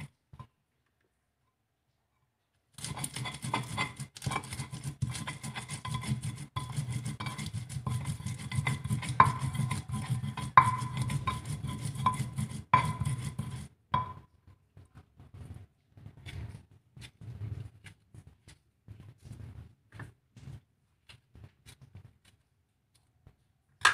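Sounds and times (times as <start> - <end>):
stone pestle grinding in mortar: 2.8 - 14.2.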